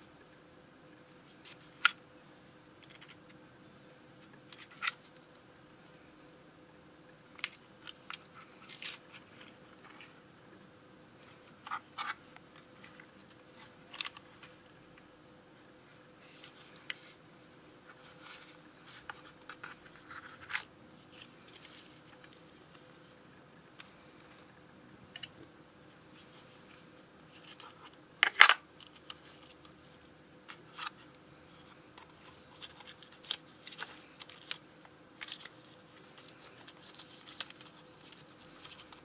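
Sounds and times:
paper rustles: 0:32.1 - 0:39.0.

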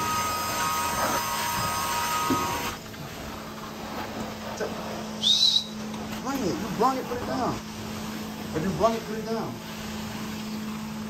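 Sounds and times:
extraction wand whine: 0:00.0 - 0:03.0
machine low hum: 0:00.0 - 0:11.0.

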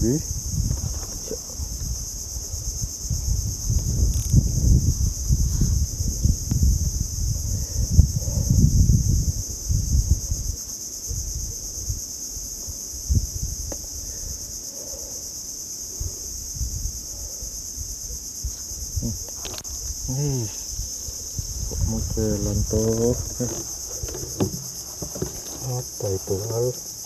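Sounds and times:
insect chorus buzzing: 0:00.0 - 0:27.0
low knocks and rumbles: 0:21.4 - 0:26.0.

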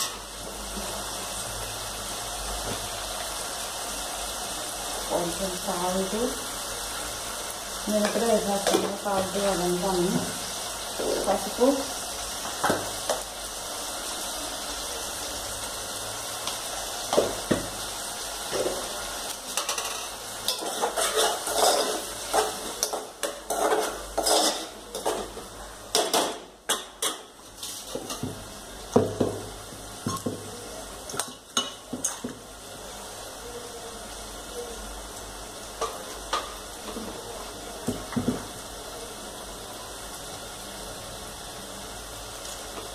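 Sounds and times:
utensils clinking against pots: 0:19.4 - 0:28.3, 0:30.0 - 0:32.4
spoon stirring in metal pot: 0:19.6 - 0:25.4.

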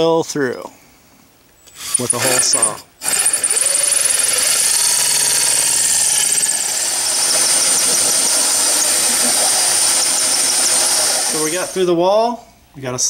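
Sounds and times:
drill hole saw cutting siding: 0:01.7 - 0:11.8.

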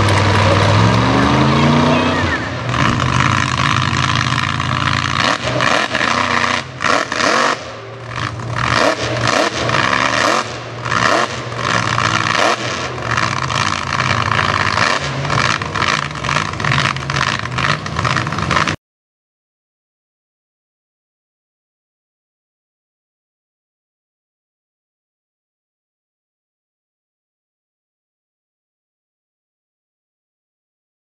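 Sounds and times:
tires spinning in mud: 0:00.0 - 0:18.8
truck engine revving hard: 0:00.0 - 0:18.8.

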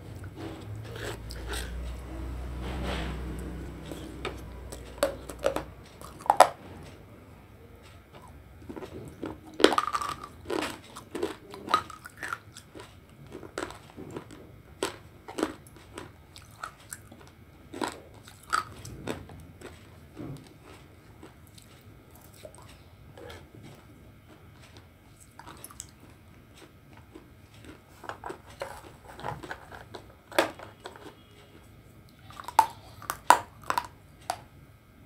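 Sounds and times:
chewing: 0:00.1 - 0:02.6, 0:03.2 - 0:06.5, 0:08.1 - 0:30.1, 0:32.1 - 0:34.4.

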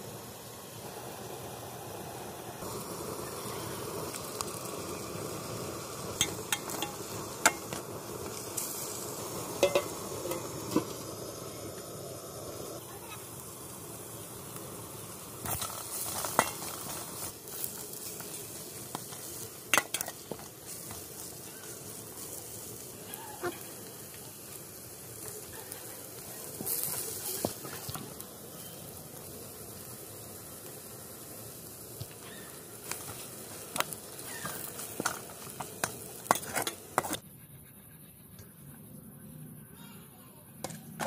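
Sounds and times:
meat sizzling in a pan: 0:00.0 - 0:37.2
spatula scraping and clinking on pan: 0:09.6 - 0:10.4, 0:35.8 - 0:37.2.

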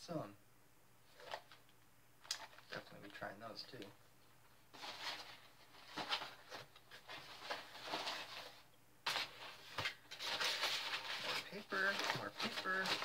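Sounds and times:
packing paper rustling: 0:04.7 - 0:13.0.

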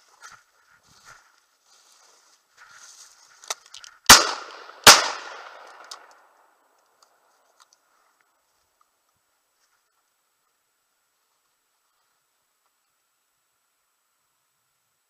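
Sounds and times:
shotgun shots with echo: 0:04.1 - 0:05.8.

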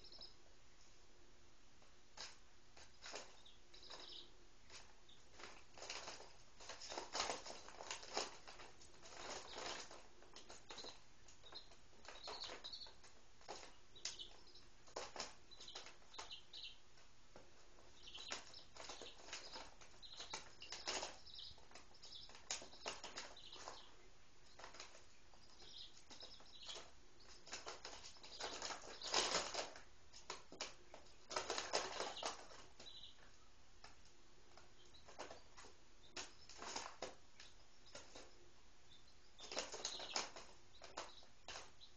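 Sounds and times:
chicks peeping: 0:00.0 - 0:01.0, 0:01.8 - 0:41.9
chick feet scratching on newspaper: 0:02.2 - 0:16.7, 0:17.8 - 0:23.9, 0:24.5 - 0:33.2, 0:36.2 - 0:37.2, 0:39.4 - 0:41.8.

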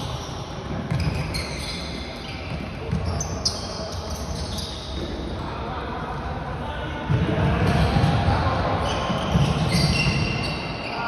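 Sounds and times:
sneakers squeaking on court floor: 0:00.0 - 0:05.3, 0:08.8 - 0:11.0.

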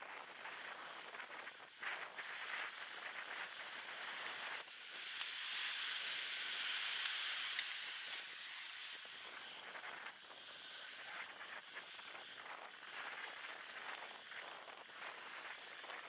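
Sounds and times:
small waves washing onto beach: 0:00.4 - 0:16.0.

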